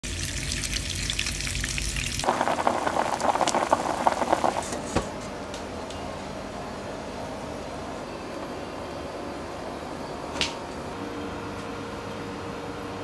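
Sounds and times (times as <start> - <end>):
meat sizzling in hot oil: 0.0 - 4.7.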